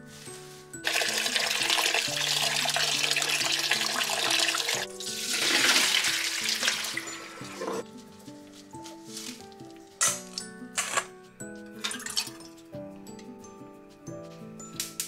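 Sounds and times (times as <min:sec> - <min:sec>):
tap water running into metal bowl: 0:00.8 - 0:07.8.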